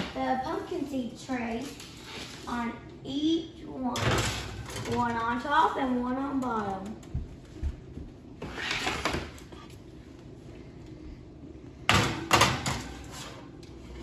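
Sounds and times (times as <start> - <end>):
baking sheet scraping on oven rack: 12.6 - 14.0.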